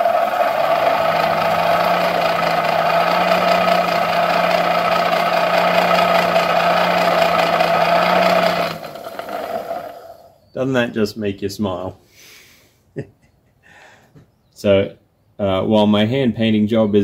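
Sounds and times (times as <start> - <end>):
hand-crank blower whirring: 0.0 - 10.3.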